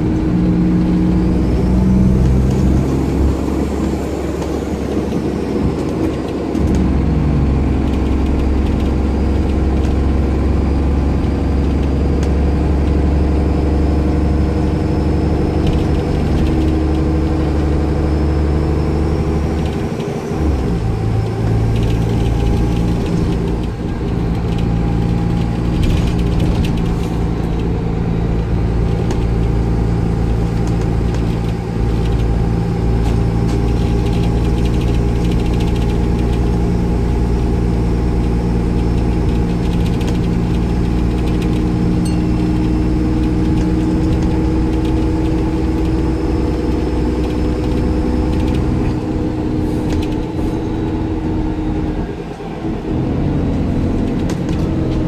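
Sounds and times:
bus diesel engine drone: 0.0 - 55.0.

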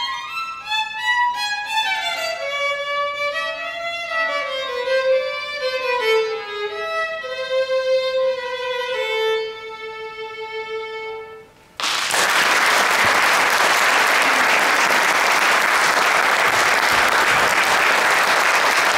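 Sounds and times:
solo violin playing: 0.0 - 11.6
audience applause: 11.8 - 18.9.

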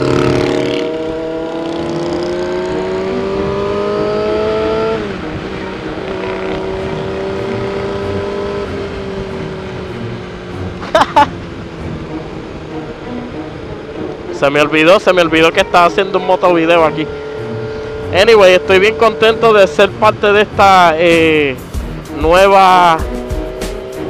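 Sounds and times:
motorcycle engine under throttle: 0.0 - 9.7.

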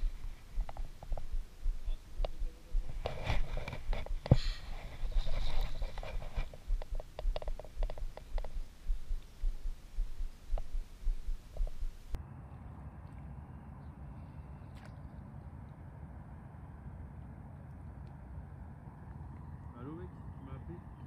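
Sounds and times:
steady hum: 0.0 - 12.2
light clicks and rustles: 2.2 - 9.4.

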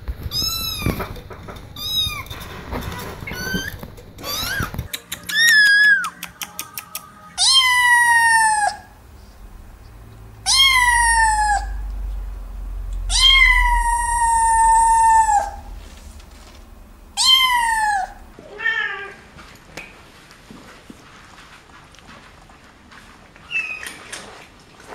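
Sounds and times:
kitten meowing: 0.2 - 1.2, 1.8 - 2.4, 3.2 - 6.3, 7.4 - 8.9, 10.4 - 11.9, 13.0 - 15.8, 17.2 - 19.2.

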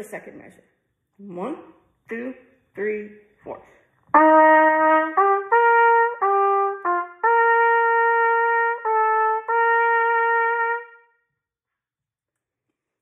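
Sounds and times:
solo trumpet playing: 4.1 - 11.4.

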